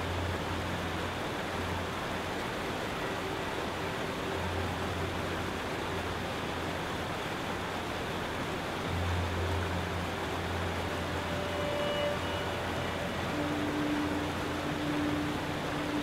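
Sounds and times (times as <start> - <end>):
steady rushing noise: 0.0 - 16.0
faint held tones: 10.7 - 16.0.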